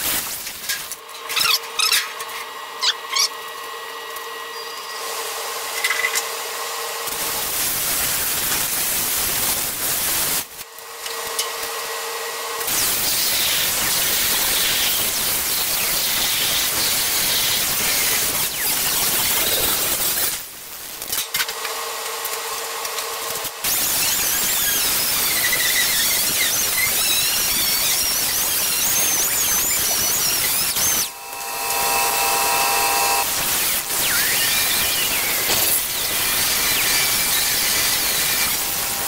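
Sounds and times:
grinder cutting steel: 12.6 - 39.0.

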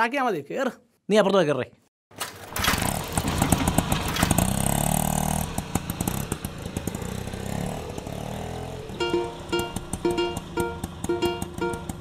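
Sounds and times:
auto-rickshaw engine revving: 2.3 - 12.0
plucked-string tune: 9.0 - 12.0.

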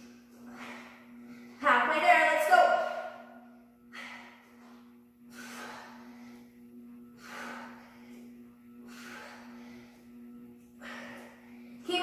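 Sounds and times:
woman breathing hard: 0.0 - 1.6, 2.9 - 11.9
steady low hum: 0.0 - 12.0.

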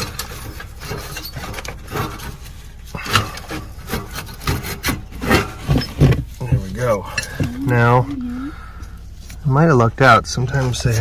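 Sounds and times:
metal parts scraping and knocking: 0.0 - 7.6.

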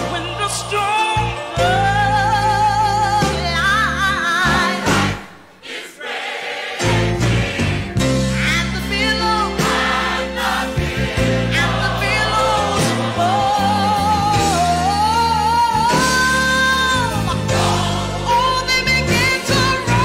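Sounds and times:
gospel singing: 0.0 - 20.0
sustained instrumental chords: 6.8 - 20.0.

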